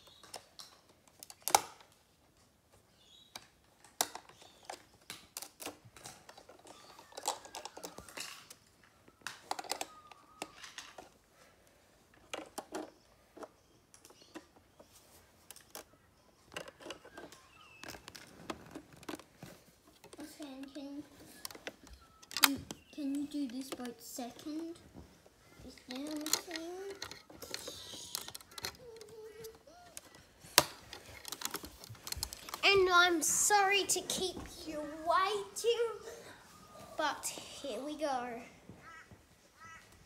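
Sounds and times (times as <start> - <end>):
plastic bricks clicking and clattering: 3.4 - 11.2, 15.4 - 24.2, 25.6 - 32.7.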